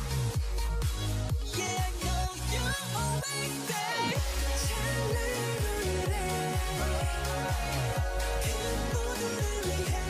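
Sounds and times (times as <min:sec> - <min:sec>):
beat: 0:00.0 - 0:10.0
deep sliding bass notes: 0:04.2 - 0:10.0.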